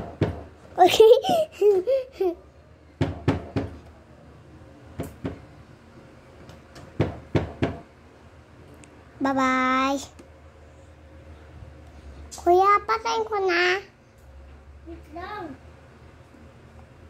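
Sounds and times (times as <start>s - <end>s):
child's voice: 9.2s - 10.1s, 12.4s - 13.9s, 14.9s - 15.6s.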